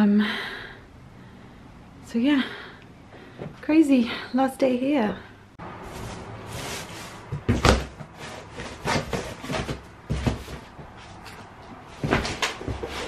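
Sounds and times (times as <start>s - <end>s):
cardboard rustling: 5.8s - 11.2s
dull thumps on cardboard: 7.3s - 10.9s.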